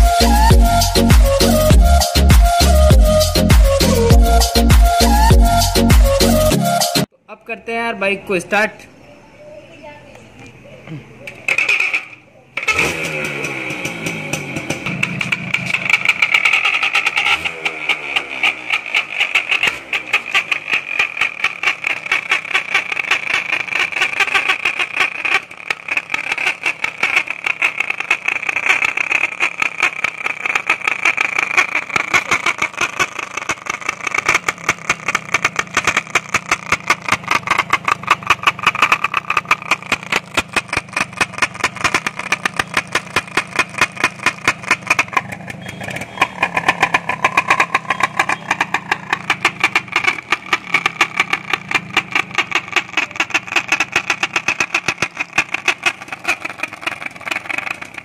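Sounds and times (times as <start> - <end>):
motorcycle engine idling: 0.0 - 6.6, 10.4 - 58.0
toy horn buzzing honk: 23.4 - 33.4.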